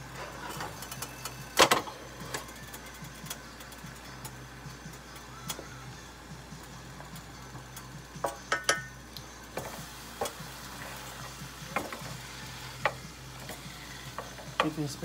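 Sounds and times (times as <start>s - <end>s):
vegetables sizzling in a skillet: 3.2s - 15.0s.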